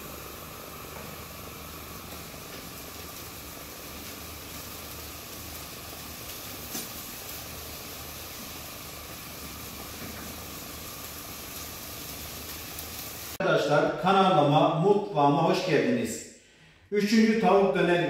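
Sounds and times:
low mechanical hum with hiss: 0.0 - 13.4.

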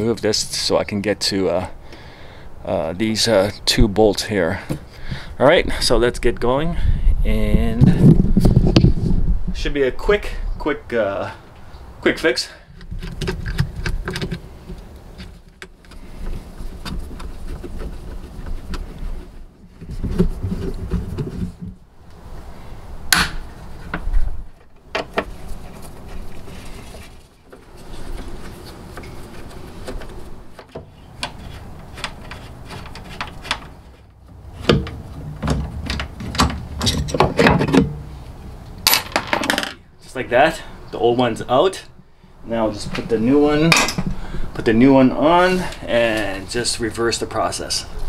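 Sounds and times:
metal scraping on plastic: 12.8 - 21.8, 23.8 - 38.0
hand tools clicking and knocking: 27.5 - 38.0.

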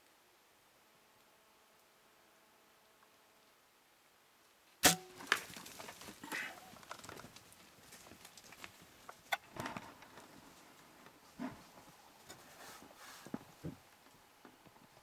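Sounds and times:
sharp crack: 4.8 - 6.7
hooves on dry ground: 5.2 - 15.0.

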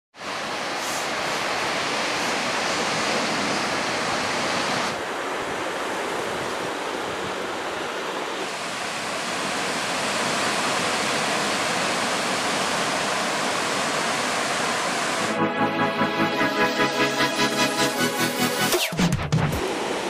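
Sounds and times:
wind: 0.1 - 15.4
ocean surf breaking: 0.2 - 18.8.

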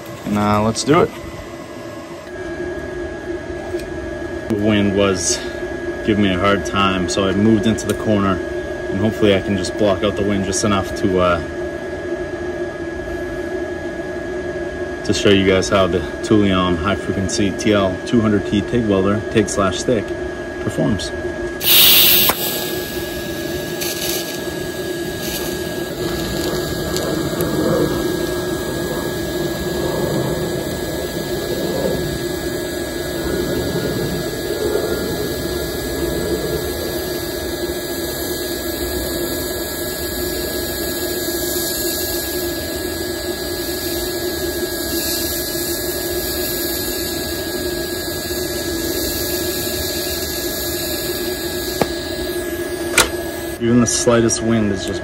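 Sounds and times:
welding arc hissing buzz: 0.0 - 2.4, 21.6 - 53.8
steady welder hum: 0.0 - 55.0.

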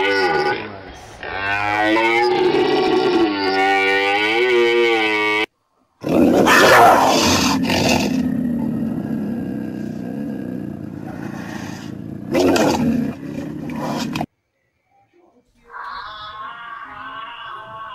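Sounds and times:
low drawn-out animal call: 0.0 - 14.3
tiger roaring and growling: 0.0 - 14.3.

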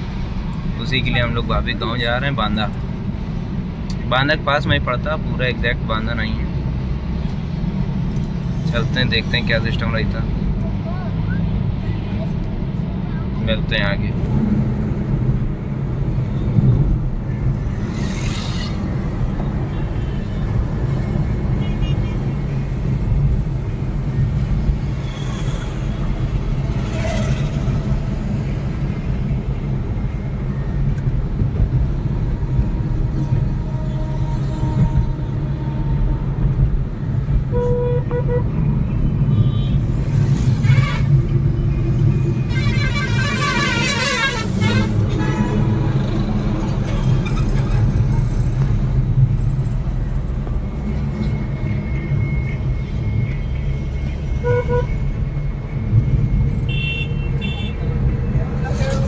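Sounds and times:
road and engine rumble in car: 0.0 - 59.0
car horns honking: 37.5 - 38.6, 40.5 - 41.4, 42.3 - 45.8, 54.3 - 55.0, 56.7 - 57.9.

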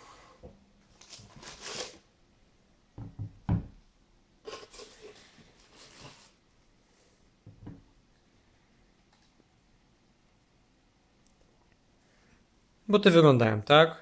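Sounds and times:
paper rustling: 0.9 - 2.0.

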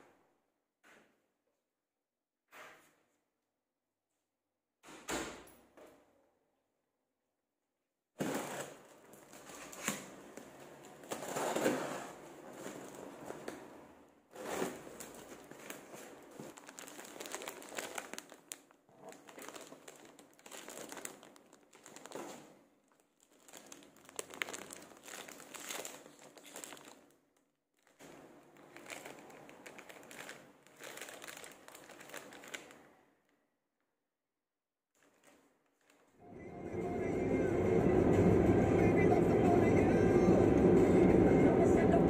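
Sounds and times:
plastic packaging crinkling: 14.4 - 32.9.

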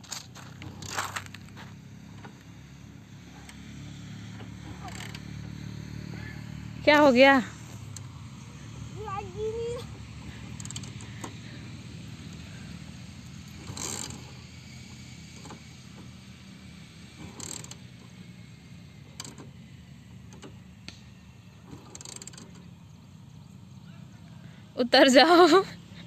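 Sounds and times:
motorcycle kick-starter kicks: 0.0 - 2.5
engine cranking rasp: 0.0 - 26.0
low steady hum: 0.0 - 26.0.

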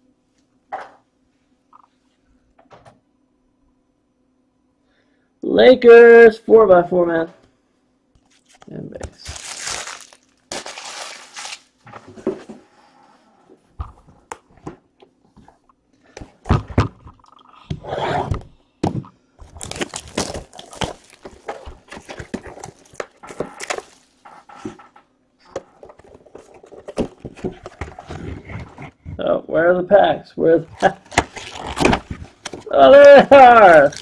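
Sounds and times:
plastic shrink wrap crinkling: 8.2 - 11.8, 19.4 - 24.5, 30.6 - 32.8, 33.4 - 34.0
cardboard scraping: 19.4 - 24.9, 25.6 - 29.2, 30.7 - 32.7
box thumps: 25.5 - 28.8, 30.7 - 32.7.

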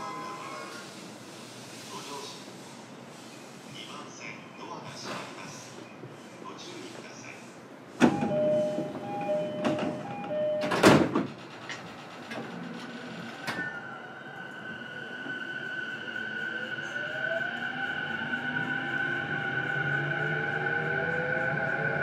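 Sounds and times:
two-tone door chime: 8.0 - 11.0
sliding doors shutting: 8.0 - 13.9
train motor inverter whine: 8.0 - 22.0.

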